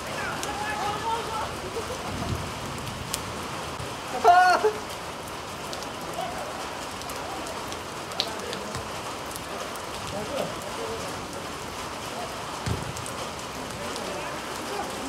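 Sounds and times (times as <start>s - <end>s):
person shouting: 0.0s - 1.6s
heavy rain falling: 0.0s - 15.0s.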